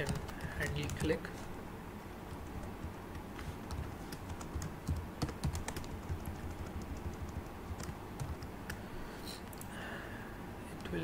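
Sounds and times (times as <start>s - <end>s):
keyboard typing: 0.0s - 1.2s, 2.3s - 8.8s
steady low hum: 0.0s - 11.0s.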